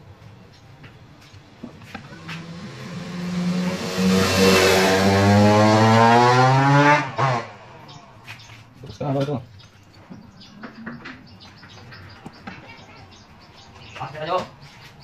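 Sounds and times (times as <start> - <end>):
vehicle engine accelerating: 1.8 - 8.5.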